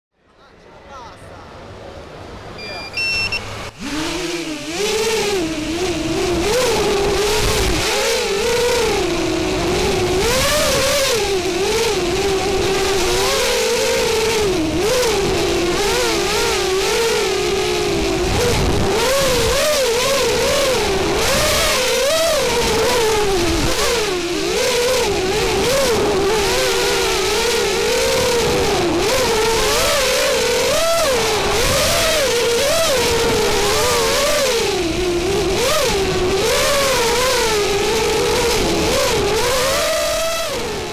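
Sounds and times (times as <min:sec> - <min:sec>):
drone motors whining: 0:02.5 - 0:40.9.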